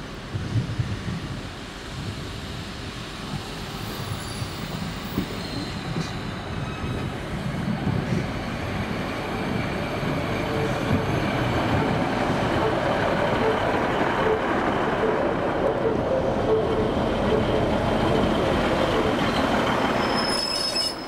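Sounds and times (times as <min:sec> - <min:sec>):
train running on track: 0:00.0 - 0:21.0.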